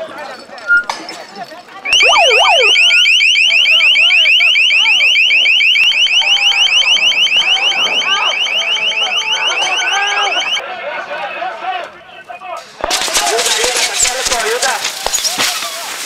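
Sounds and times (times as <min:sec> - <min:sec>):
ambulance siren yelping: 0:01.9 - 0:10.6
people shouting: 0:02.0 - 0:13.8.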